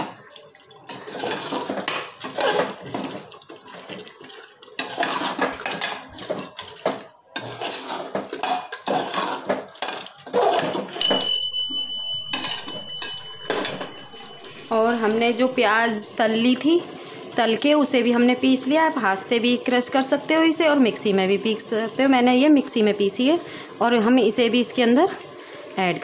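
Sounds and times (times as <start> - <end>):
ladle scraping metal pot: 0.9 - 15.5
thin high tone: 11.0 - 15.7.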